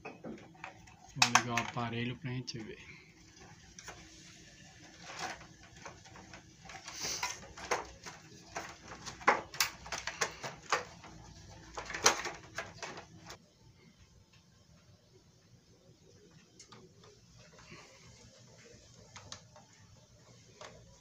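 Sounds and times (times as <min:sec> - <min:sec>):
plastic clicks and knocks: 0:00.0 - 0:01.8, 0:05.2 - 0:13.4.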